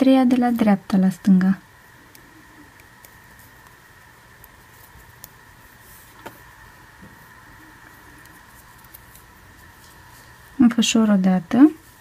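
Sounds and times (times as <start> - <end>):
faint hum: 0.0 - 12.0
fingers handling yarn: 7.8 - 10.6.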